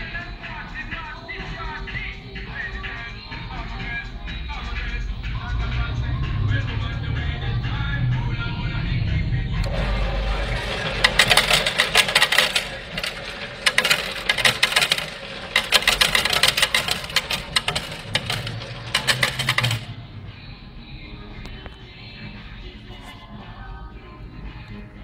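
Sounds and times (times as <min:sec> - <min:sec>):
coins clattering into metal tray: 0:09.6 - 0:19.9.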